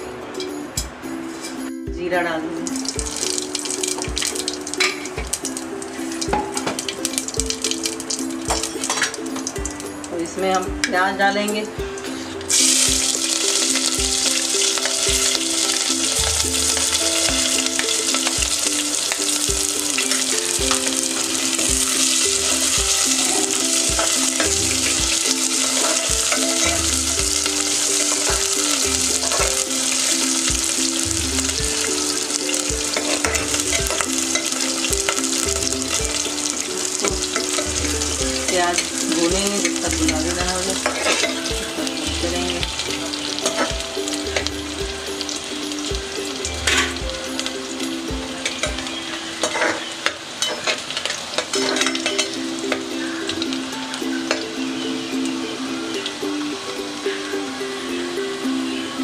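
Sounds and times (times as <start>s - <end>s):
onions sizzling in hot oil: 2.6s - 10.9s, 11.9s - 59.0s
metal skimmer stirring: 2.8s - 5.5s, 12.5s - 43.7s.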